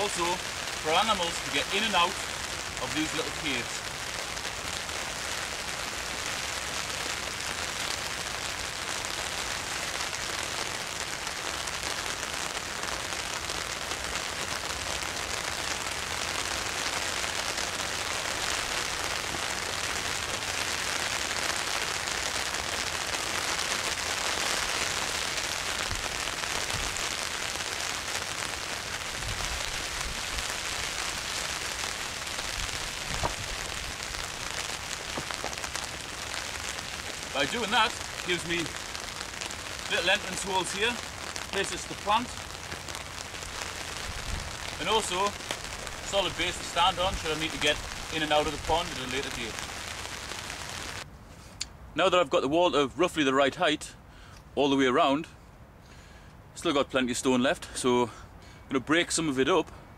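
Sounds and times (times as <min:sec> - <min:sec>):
rain hissing on pond water: 0:00.0 - 0:59.9
stones knocking on stone wall: 0:33.2 - 0:33.4, 0:35.1 - 0:35.5.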